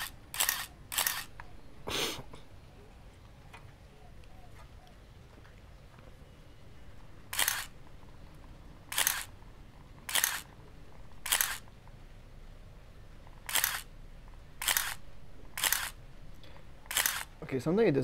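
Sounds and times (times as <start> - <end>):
camera shutter clacking: 0.0 - 1.4, 7.3 - 7.8, 8.9 - 9.3, 10.0 - 10.5, 11.2 - 11.7, 13.4 - 13.9, 14.6 - 16.0, 16.9 - 17.3.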